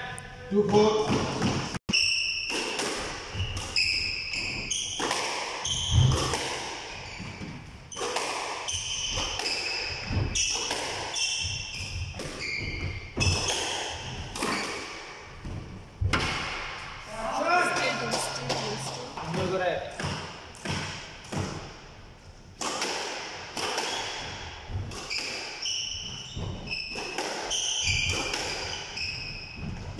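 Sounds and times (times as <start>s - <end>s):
shoes squeaking on court: 3.3s - 15.6s, 24.9s - 29.9s.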